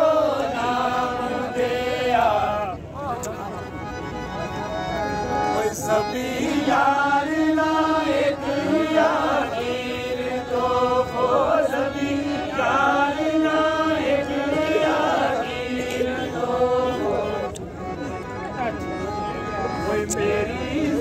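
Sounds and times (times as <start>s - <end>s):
men singing together: 0.0s - 2.8s, 5.6s - 17.5s, 19.9s - 21.0s
harmonium: 0.0s - 21.0s.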